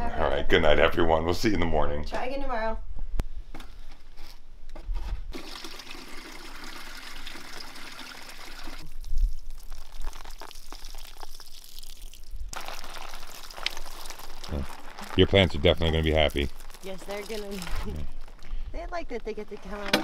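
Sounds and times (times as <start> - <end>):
water running and splashing: 5.3 - 18.4.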